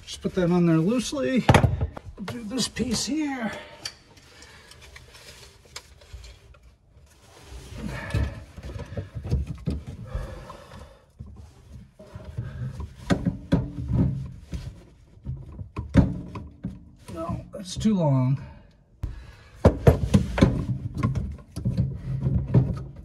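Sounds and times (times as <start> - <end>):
plastic pipe knocking and scraping: 7.7 - 18.1, 19.0 - 23.0.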